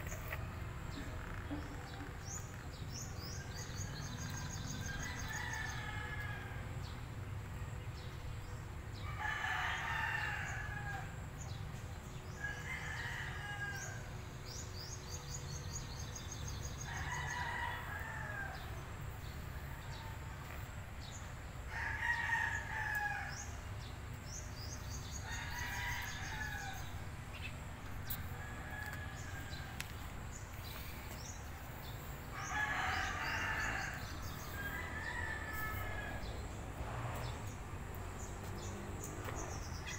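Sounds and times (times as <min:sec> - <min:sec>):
rooster crowing: 0:32.4 - 0:36.3.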